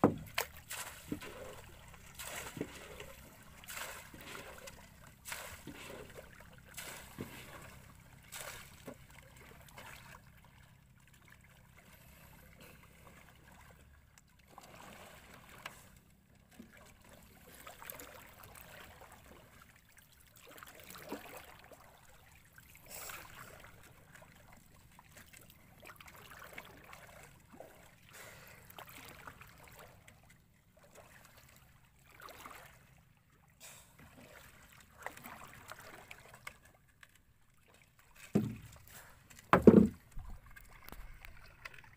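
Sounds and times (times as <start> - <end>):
sharp knocks or splashes: 0.0 - 9.2, 38.2 - 41.9
water lapping against hulls: 0.0 - 41.9.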